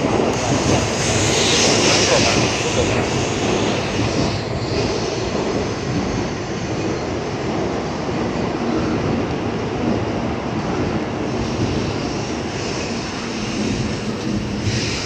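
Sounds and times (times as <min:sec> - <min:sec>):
train rushing past platform: 0:00.0 - 0:15.0.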